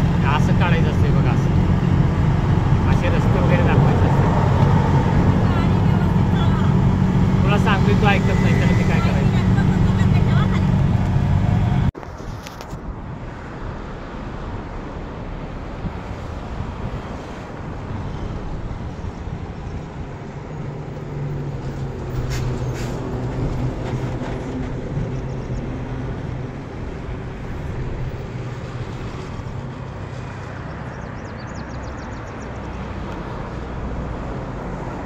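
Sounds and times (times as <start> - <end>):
vehicle engine passing: 0.0 - 11.9
outdoor rumble: 0.0 - 12.0.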